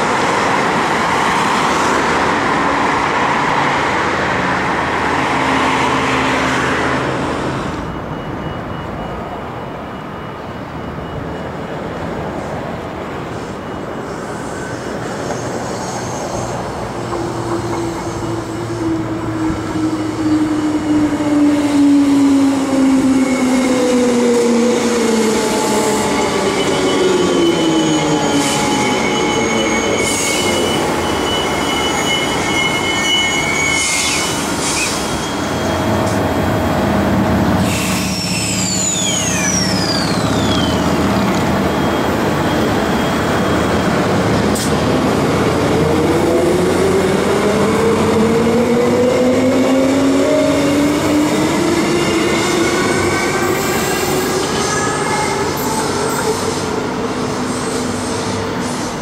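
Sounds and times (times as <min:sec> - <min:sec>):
train whining tones: 0:00.0 - 0:59.0
high squeal: 0:13.3 - 0:21.2, 0:22.6 - 0:36.9, 0:37.5 - 0:59.0.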